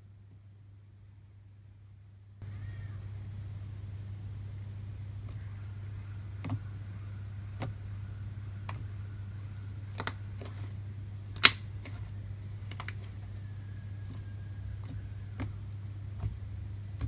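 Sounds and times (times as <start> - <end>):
steady low hum: 0.0 - 17.0
slime popping and clicking: 11.4 - 12.0.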